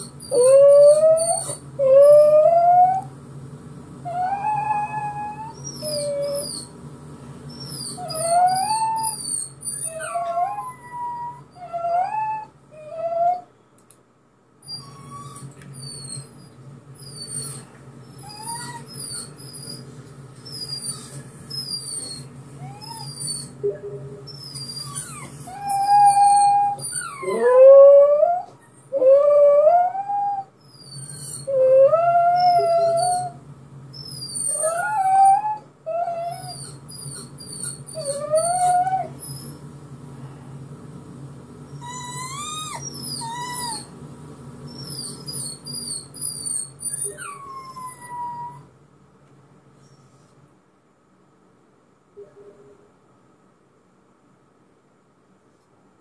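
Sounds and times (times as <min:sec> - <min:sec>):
dog howling: 0:00.0 - 0:03.1, 0:04.1 - 0:06.7, 0:07.6 - 0:13.5, 0:24.3 - 0:33.4, 0:34.0 - 0:39.6, 0:41.8 - 0:43.9
dog whimpering: 0:00.0 - 0:03.1, 0:04.1 - 0:06.7, 0:07.5 - 0:13.5, 0:14.6 - 0:33.4, 0:34.0 - 0:39.6, 0:41.7 - 0:43.9, 0:44.7 - 0:48.7.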